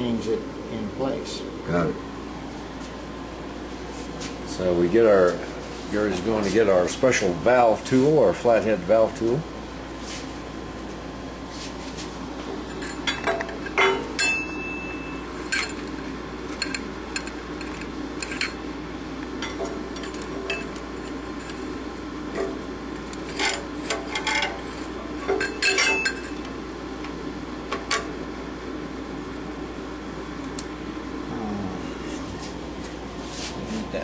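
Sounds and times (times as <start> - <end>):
steel tools clinking on engine block: 25.4 - 26.4.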